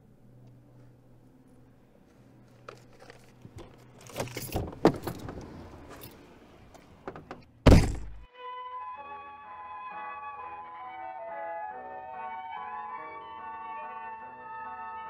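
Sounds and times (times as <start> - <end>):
rustling and clinking: 2.4 - 8.3
car door slamming: 3.6 - 6.0, 6.7 - 8.3
keys jangling: 4.0 - 6.3
soft string music: 8.2 - 15.0.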